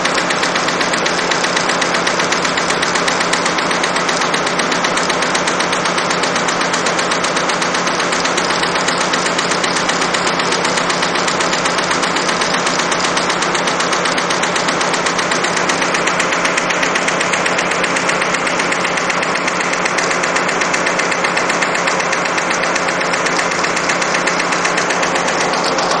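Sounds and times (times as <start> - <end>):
embroidery machine clatter: 0.0 - 26.0.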